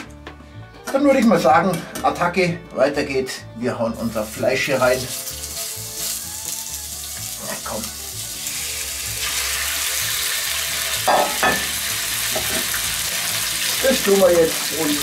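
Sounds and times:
meat sizzling in hot oil: 4.0s - 15.0s.

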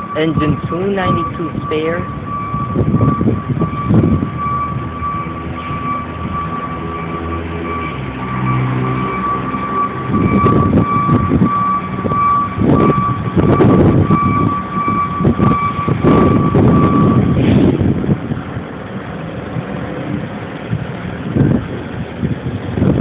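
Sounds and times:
high electronic warning beep: 0.0s - 17.4s
wind buffeting microphone: 0.0s - 23.0s.

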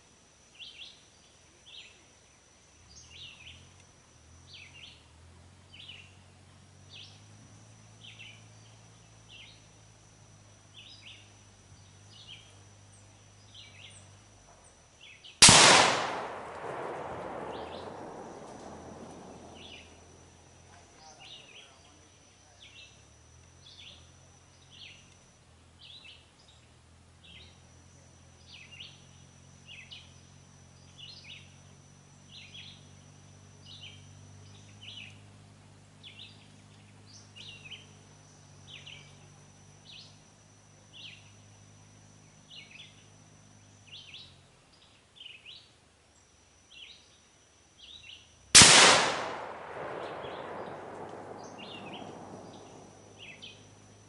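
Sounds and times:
high insect-like drone: 0.0s - 15.4s, 16.0s - 48.5s, 49.4s - 54.0s
rifle shot with echo: 15.4s - 20.1s, 48.6s - 53.7s
chirping: 16.7s - 22.0s, 49.7s - 54.0s.

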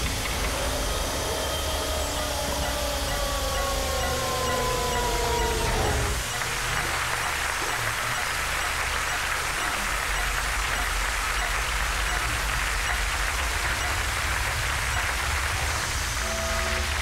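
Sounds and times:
low rumble: 0.0s - 8.1s
audience applause: 0.0s - 16.2s.

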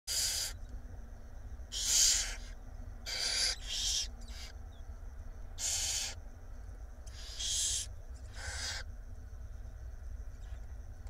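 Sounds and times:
barn owls hissing: 0.1s - 0.6s, 1.7s - 4.6s, 5.6s - 6.3s, 7.1s - 8.9s
low steady hum: 0.1s - 11.0s.

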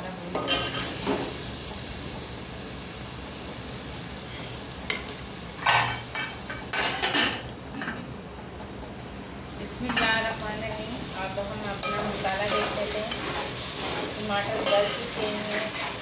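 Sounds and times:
food sizzling in oil: 0.0s - 16.0s
spoon stirring: 11.8s - 16.0s.

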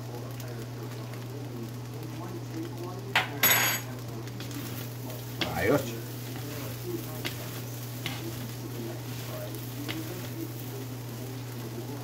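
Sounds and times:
food sizzling in a wok: 0.0s - 12.0s
low steady hum: 0.0s - 12.0s
spatulas scraping a pan: 4.3s - 12.0s.

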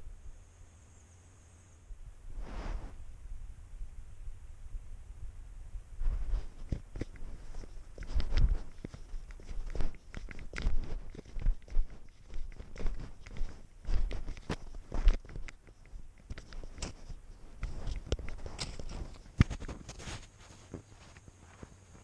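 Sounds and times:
paws crunching through snow: 6.0s - 22.0s.

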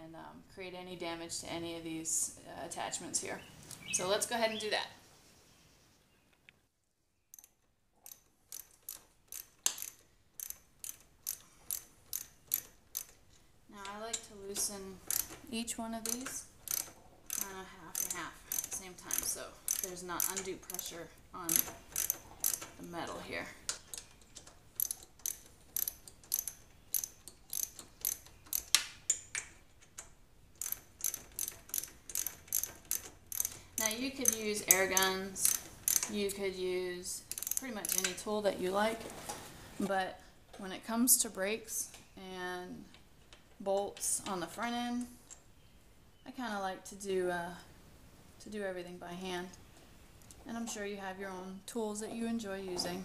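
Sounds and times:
ratchet clicking: 7.3s - 36.4s, 37.3s - 38.2s.

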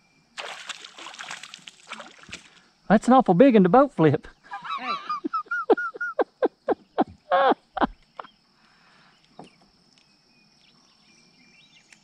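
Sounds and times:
faint insect buzz: 4.3s - 12.0s.

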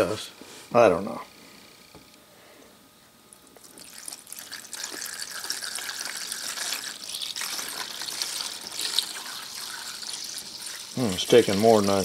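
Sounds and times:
liquid pouring and splashing: 3.6s - 12.0s.

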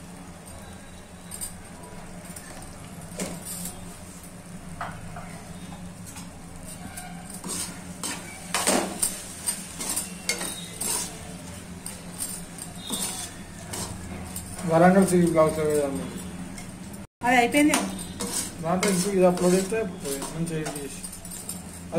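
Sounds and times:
metal spatula scraping a pan: 6.6s - 16.4s, 17.6s - 21.9s.

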